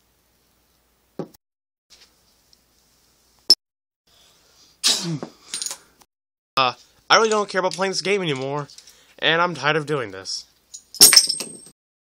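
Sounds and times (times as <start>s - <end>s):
person sneezing: 4.8s - 5.4s.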